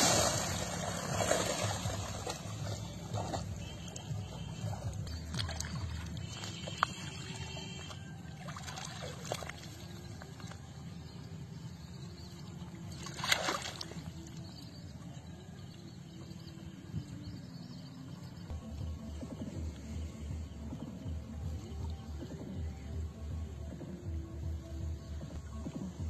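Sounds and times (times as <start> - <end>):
water splash: 0.0 - 10.6, 12.9 - 14.4
water sloshing and trickling: 0.0 - 23.2.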